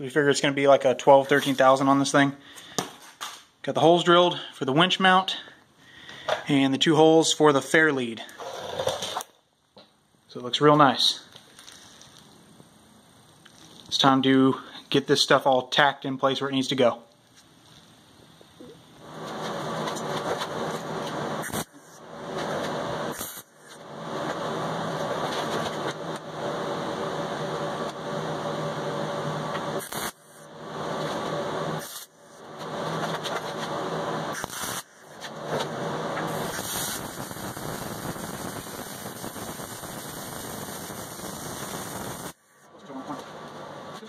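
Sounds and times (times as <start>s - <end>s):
welder arc buzzing: 10.8s - 44.0s.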